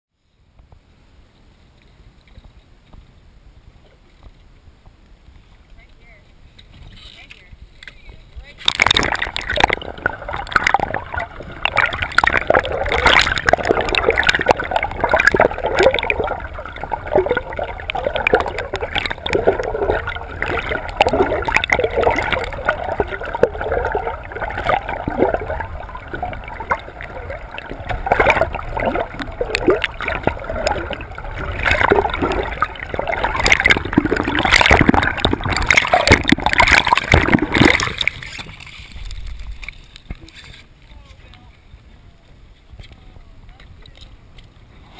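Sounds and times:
underwater gurgling and rushing: 8.6s - 40.6s.

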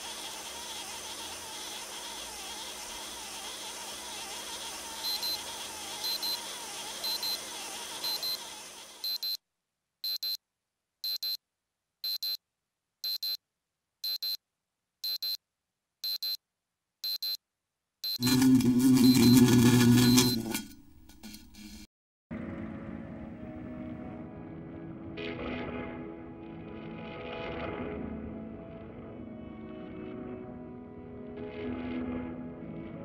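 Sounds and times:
high electronic double beep: 5.0s - 5.4s, 6.0s - 6.4s, 7.0s - 7.4s, 8.0s - 8.4s, 9.0s - 9.4s, 10.1s - 10.4s, 18.0s - 20.8s.

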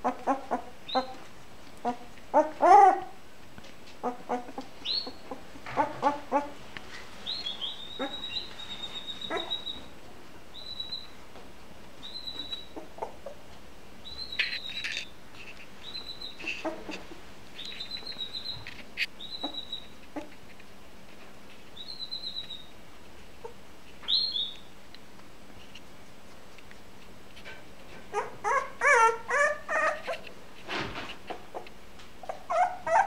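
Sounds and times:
puppy squeaking: 0.0s - 1.2s, 1.8s - 3.1s, 7.3s - 9.9s, 12.0s - 13.4s, 14.1s - 15.1s, 15.8s - 17.0s, 17.6s - 20.3s, 28.1s - 30.2s, 32.2s - 33.0s.

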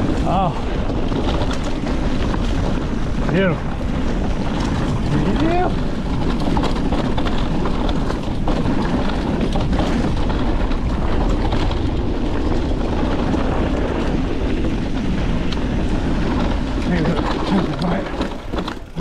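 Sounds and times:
bike clicks and rattles: 0.0s - 19.0s
tyres rolling over dirt and rock: 0.0s - 19.0s
wind noise on microphone: 0.0s - 19.0s.

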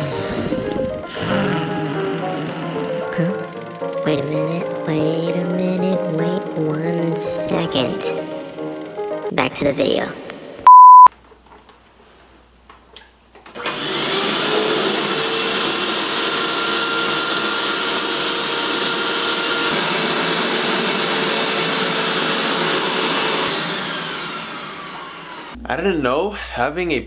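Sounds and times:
vacuum cleaner running: 0.0s - 9.2s, 13.5s - 25.6s
loud test-tone beep: 10.6s - 11.1s.

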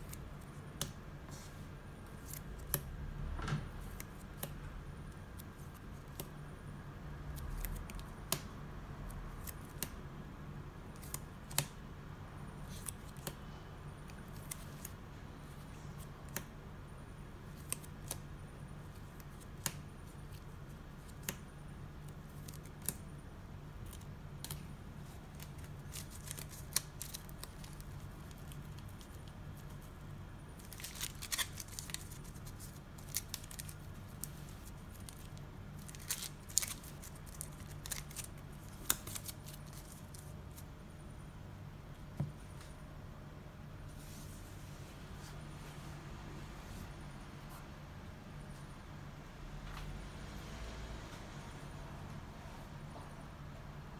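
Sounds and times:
sleeved cards clicking: 25.3s - 29.7s, 30.6s - 40.2s.

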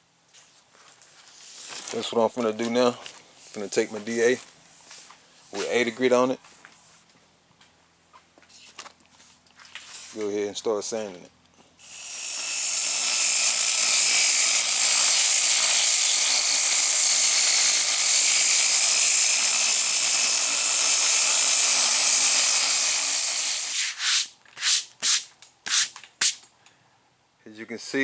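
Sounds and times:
sander sanding filler: 12.3s - 26.4s.

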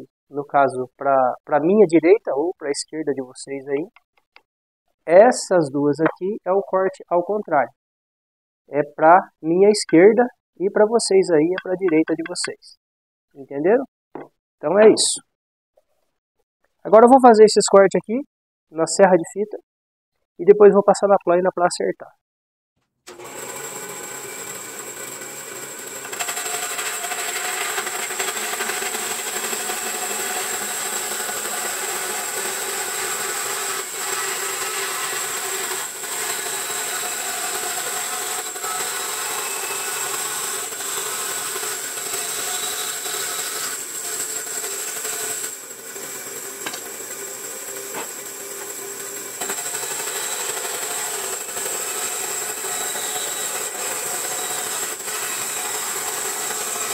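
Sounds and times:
band saw cutting wood: 11.5s - 12.6s, 23.1s - 56.9s.

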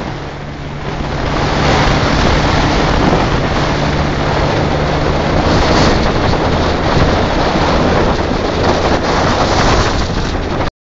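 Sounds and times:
motorcycle engine running: 0.0s - 10.7s
wind rushing over microphone: 0.0s - 10.7s.

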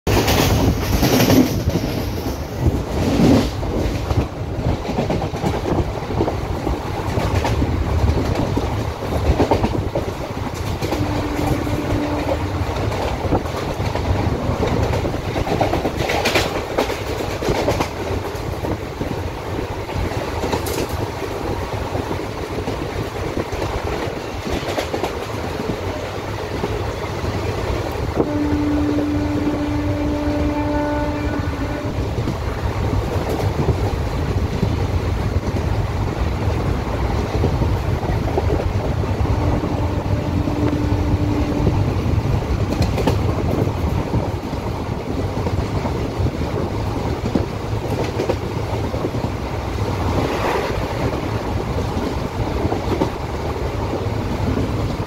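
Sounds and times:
train rumbling and rushing: 0.0s - 55.0s
train horn: 10.8s - 12.9s, 28.2s - 32.2s, 39.2s - 42.0s.

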